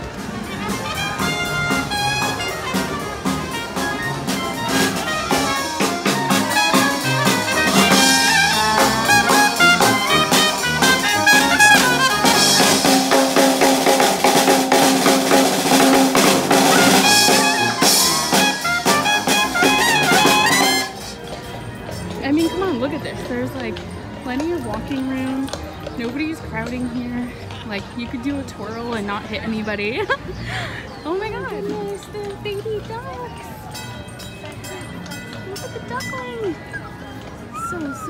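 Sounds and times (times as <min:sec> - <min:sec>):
upbeat jazz brass music: 0:00.0 - 0:21.3.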